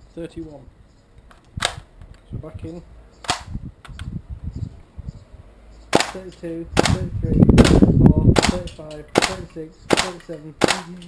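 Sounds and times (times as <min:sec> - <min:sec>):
airsoft rifle shots: 0:03.2 - 0:03.6, 0:05.9 - 0:11.0
rifle handling clicks: 0:08.4 - 0:11.0.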